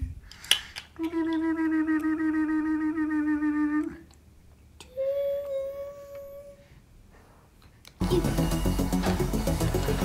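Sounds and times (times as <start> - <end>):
person humming a long note: 1.0 - 4.0.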